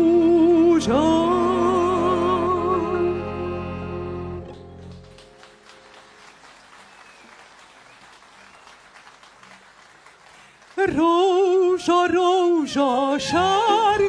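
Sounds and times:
woman singing with vibrato: 0.0s - 4.2s, 10.8s - 14.0s
faint scattered applause: 4.2s - 11.8s.

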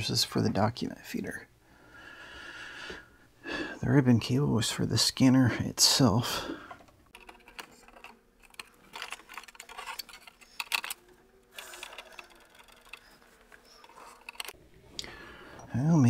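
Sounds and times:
plastic parts clicking: 6.7s - 15.1s.

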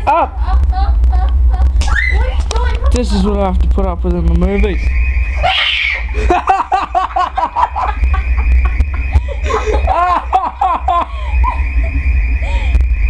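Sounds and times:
person laughing: 0.0s - 1.8s, 5.4s - 12.8s
steady low rumble: 0.0s - 13.0s.

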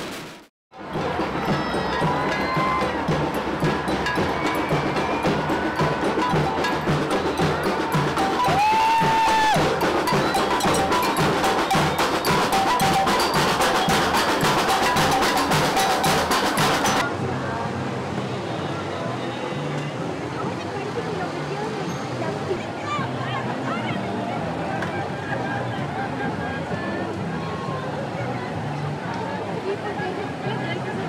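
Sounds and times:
drum beat: 0.0s - 17.1s
held high tone: 1.4s - 17.0s.

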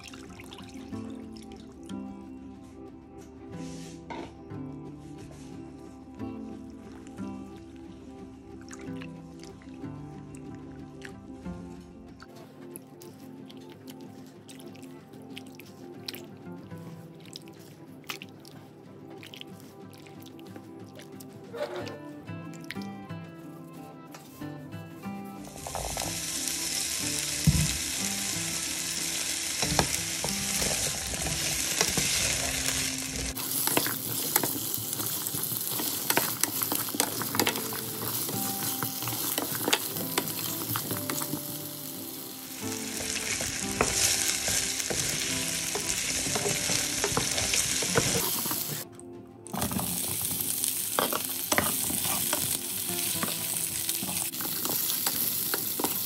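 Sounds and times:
vegetables sizzling in oil: 25.5s - 48.8s, 49.5s - 56.0s.

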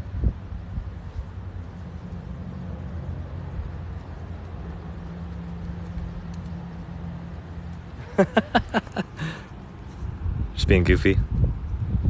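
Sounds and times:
wind buffeting microphone: 0.0s - 7.0s, 9.9s - 12.0s.

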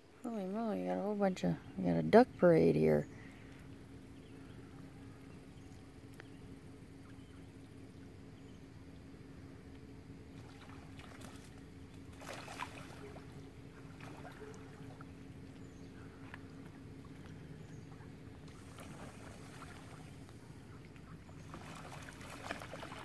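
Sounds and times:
faint steady low hum: 0.0s - 23.0s
duck splashing on water: 10.3s - 23.0s.

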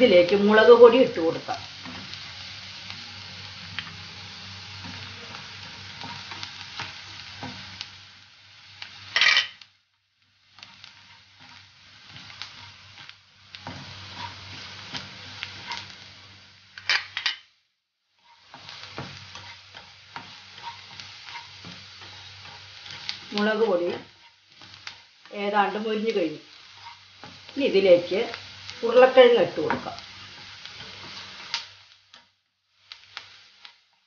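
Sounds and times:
onions sizzling in hot oil: 0.0s - 34.0s
spatula scraping a pan: 10.5s - 16.0s, 18.2s - 25.2s, 26.5s - 27.5s.

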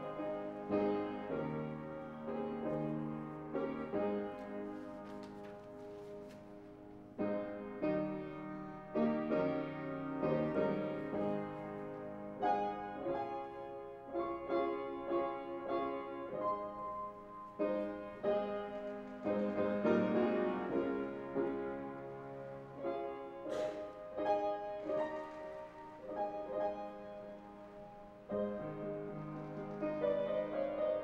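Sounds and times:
piano playing slow chords: 0.0s - 31.0s.

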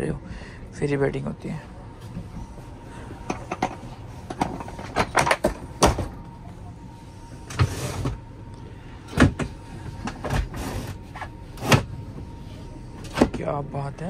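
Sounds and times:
train carriage rumble: 0.0s - 14.0s
clunks and knocks of train seat: 3.3s - 6.2s, 9.1s - 12.0s.

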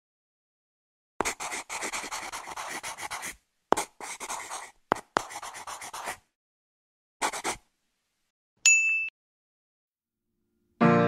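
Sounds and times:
pencil scratching on paper: 1.2s - 6.2s, 7.2s - 7.6s.

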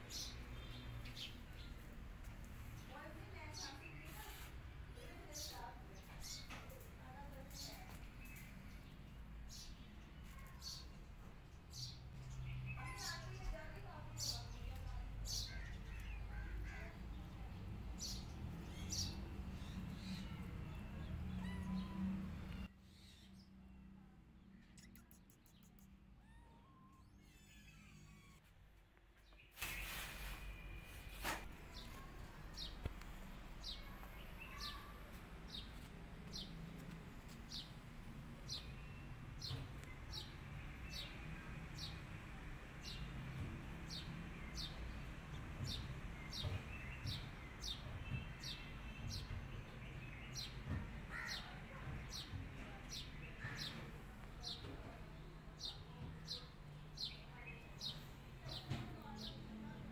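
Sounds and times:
bird chirping: 18.0s - 28.4s.

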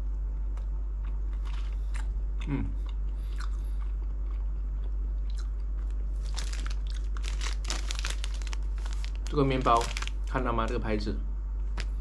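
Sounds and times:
person chewing food: 0.4s - 9.3s
crisp crunching: 5.2s - 10.4s.

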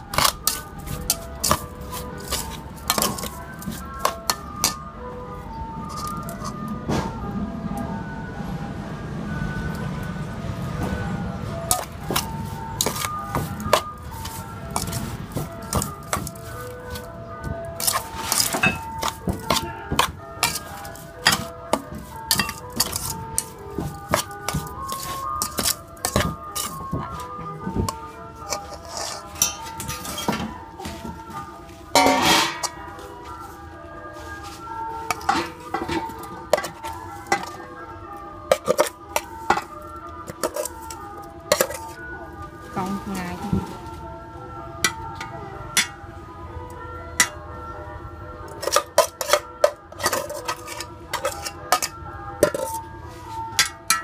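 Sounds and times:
background music with held notes: 0.0s - 54.0s
metal spoon scraping cookware: 0.1s - 4.8s, 17.8s - 23.5s, 24.1s - 26.9s, 27.9s - 30.4s, 32.0s - 32.8s, 35.1s - 37.6s, 38.5s - 39.7s, 40.3s - 42.0s, 48.6s - 52.8s
metal utensil clinking against pot: 0.1s - 4.8s, 17.8s - 26.9s, 27.9s - 30.4s, 32.0s - 32.8s, 35.1s - 37.6s, 38.5s - 39.7s, 40.3s - 42.0s, 48.6s - 52.8s, 53.6s - 54.0s.

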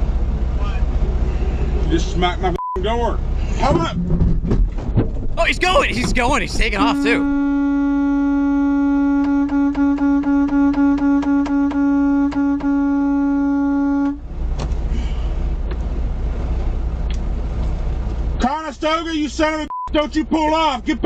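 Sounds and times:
truck engine rumbling: 0.0s - 21.0s
truck horn blast: 5.9s - 14.3s.

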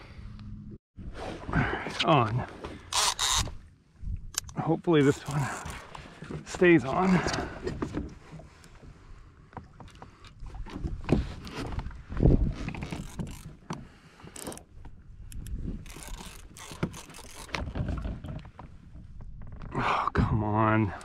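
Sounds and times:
low wind rumble: 10.4s - 14.0s.

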